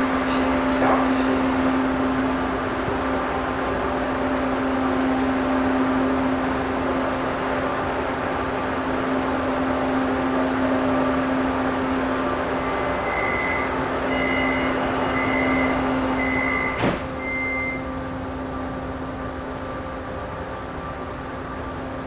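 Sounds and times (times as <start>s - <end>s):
train carriage hum: 0.0s - 22.0s
high warning beeps: 12.6s - 17.9s
sliding doors shutting thump: 15.3s - 17.3s.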